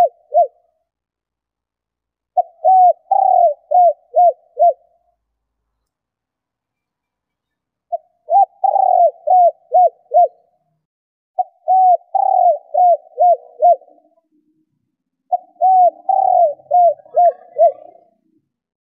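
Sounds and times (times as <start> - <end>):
dove cooing: 0.0 - 0.6, 2.4 - 5.0, 7.9 - 10.5, 11.4 - 14.2, 15.3 - 18.4.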